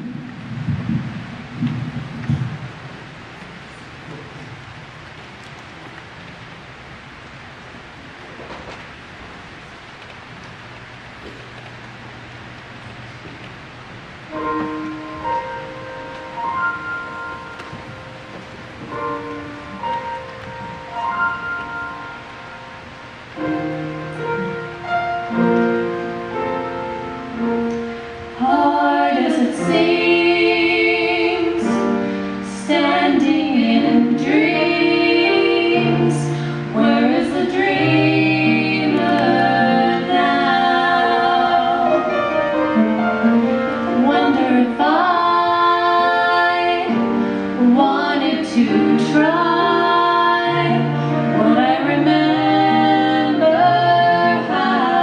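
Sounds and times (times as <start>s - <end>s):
piano playing: 9.2s - 55.0s
women singing together: 28.4s - 42.2s, 43.9s - 55.0s.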